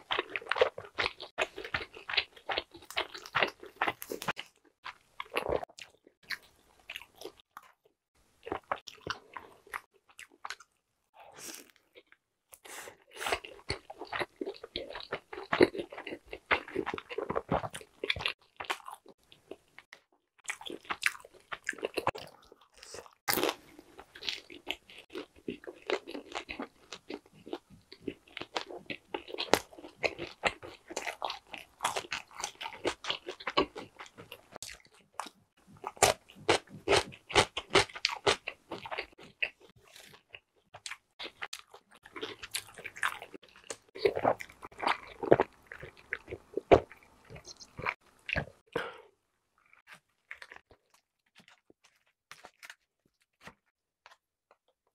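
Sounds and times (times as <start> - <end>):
crunchy chewing of pizza: 0.0 - 7.8, 11.4 - 49.0, 49.6 - 54.7.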